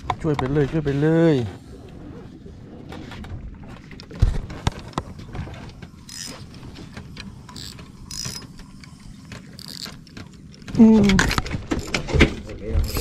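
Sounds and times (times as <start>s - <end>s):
fishing reel whirring: 6.0s - 6.7s, 7.4s - 10.1s
fishing reel clicking: 6.1s - 6.6s, 7.4s - 10.1s.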